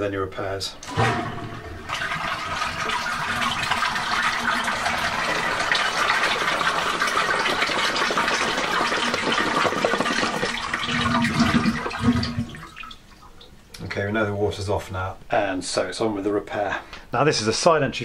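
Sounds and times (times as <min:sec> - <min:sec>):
toilet flushing: 0:00.8 - 0:13.5.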